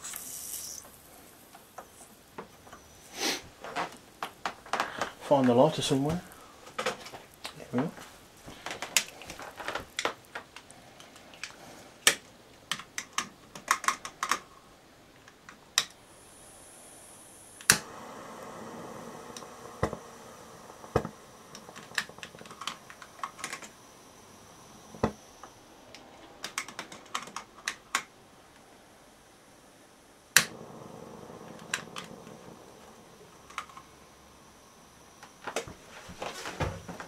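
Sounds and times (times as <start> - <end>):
gas hissing: 0.0 - 37.0
lighter clicking: 17.5 - 23.6, 30.4 - 32.5.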